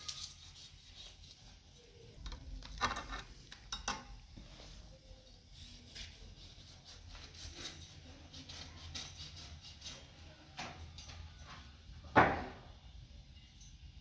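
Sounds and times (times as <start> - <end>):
utensils and dishes clinking: 2.2 - 4.2.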